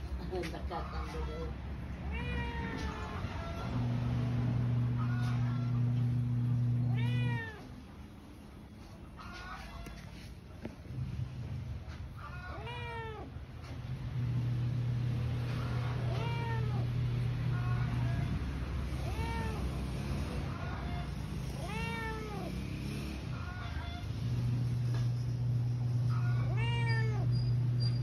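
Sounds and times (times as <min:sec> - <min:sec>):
cat meowing: 0:01.2 - 0:03.7, 0:04.9 - 0:07.7, 0:12.2 - 0:13.4, 0:15.4 - 0:19.8, 0:20.5 - 0:22.6, 0:26.1 - 0:27.8.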